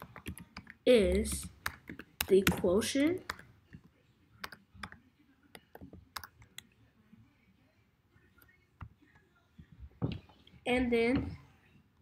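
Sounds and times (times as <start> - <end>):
keyboard typing: 0.0 - 6.7.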